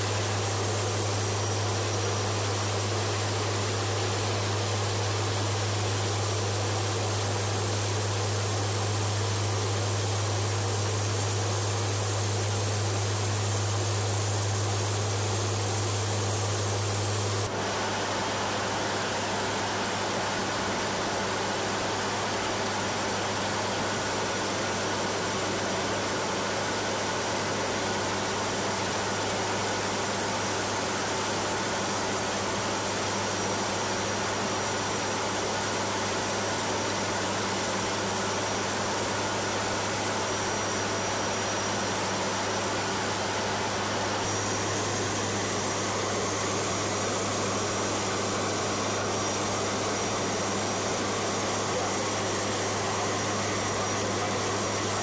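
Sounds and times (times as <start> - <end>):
aircraft engine hum: 0.0 - 17.5
airflow hiss: 0.0 - 22.7, 23.9 - 55.0.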